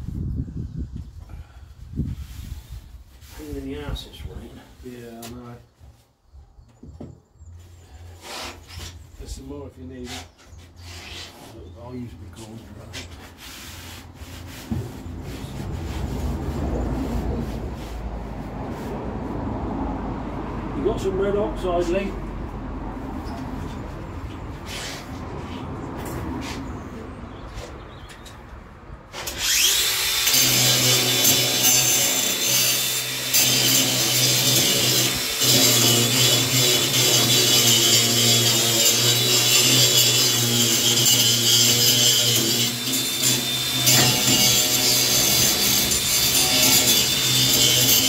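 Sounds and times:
angle grinder grinding steel: 0:29.2 - 0:48.0.

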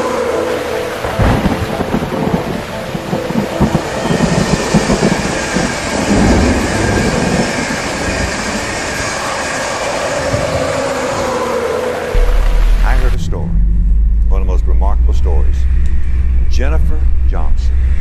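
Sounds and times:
steady rain: 0:00.0 - 0:13.2
low rumbles of thunder: 0:01.0 - 0:09.2.

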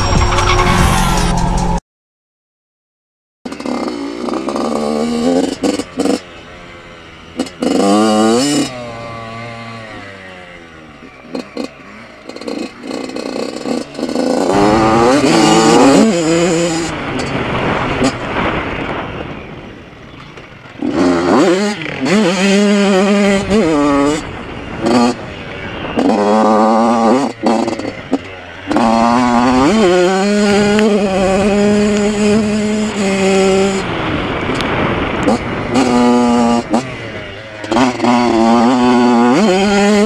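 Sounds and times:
two-stroke motorcycle engine revving: 0:03.5 - 0:40.0
wind noise on camera: 0:12.3 - 0:40.0.

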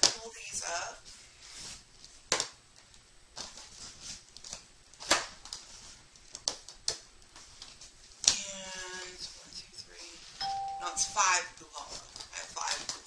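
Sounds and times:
cardboard rustling: 0:03.4 - 0:09.4.

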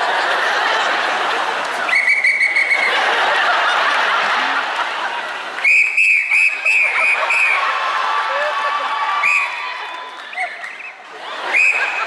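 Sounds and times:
whistle blasts: 0:01.9 - 0:02.9, 0:05.6 - 0:07.6, 0:10.4 - 0:12.0.

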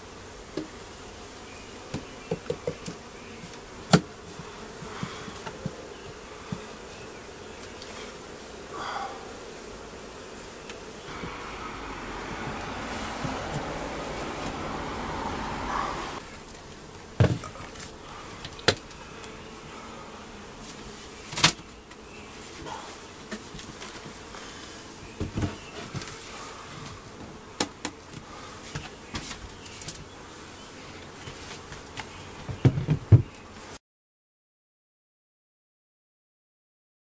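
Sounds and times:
honeybees buzzing: 0:00.0 - 0:33.8
wooden hive cover knocks: 0:17.2 - 0:17.5.

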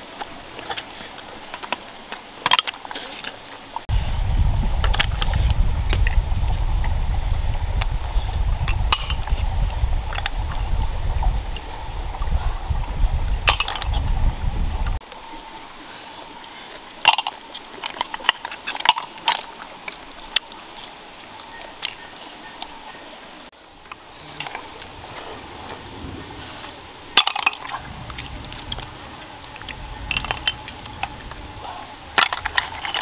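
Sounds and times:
running water hiss: 0:00.0 - 0:33.0.

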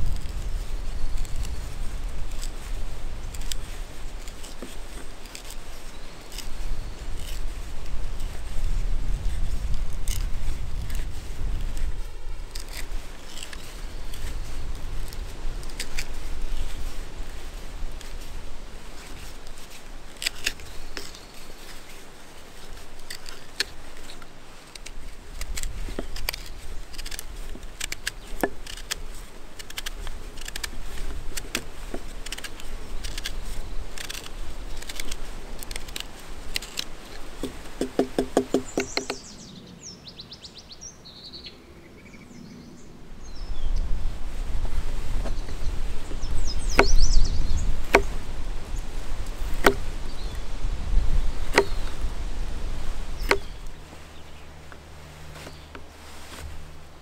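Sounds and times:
bird chirps: 0:38.6 - 0:43.8, 0:45.3 - 0:47.7
knife whittling wood: 0:46.5 - 0:48.2, 0:51.4 - 0:52.0.

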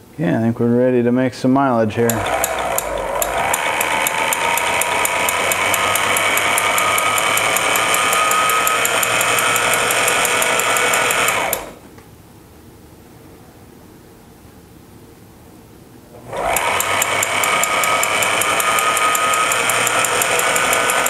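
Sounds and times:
rapid stitch clicks: 0:02.1 - 0:11.8, 0:16.3 - 0:21.0
sewing machine motor whine: 0:02.1 - 0:11.8, 0:16.2 - 0:21.0.

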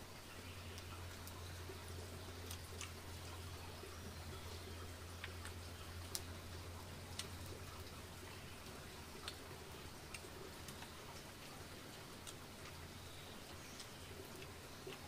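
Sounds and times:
steady low hum: 0:00.0 - 0:15.0
faint sharp clicks: 0:00.7 - 0:01.4, 0:07.1 - 0:07.9, 0:13.4 - 0:15.0.

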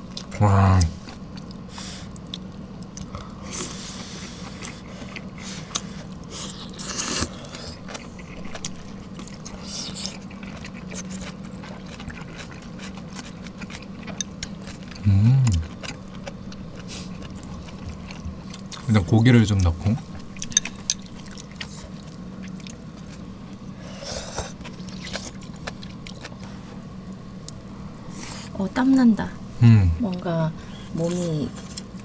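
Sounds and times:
close chewing with mouth clicks: 0:00.1 - 0:28.4.

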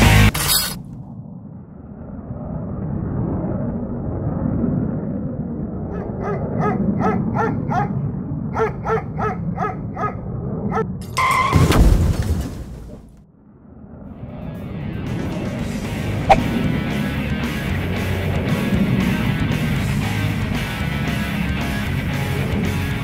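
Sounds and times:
low rumble: 0:00.9 - 0:06.2.

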